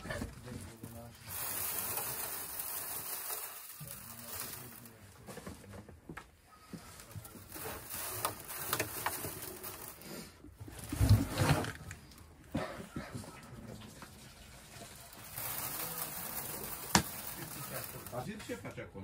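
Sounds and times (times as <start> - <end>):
steady hiss: 0.7 - 5.2, 14.0 - 18.8.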